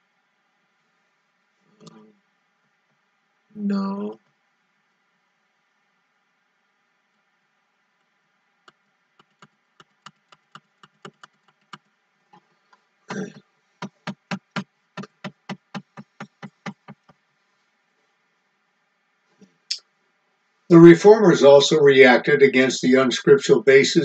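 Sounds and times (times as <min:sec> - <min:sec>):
computer mouse clicks: 0:08.7 - 0:11.8.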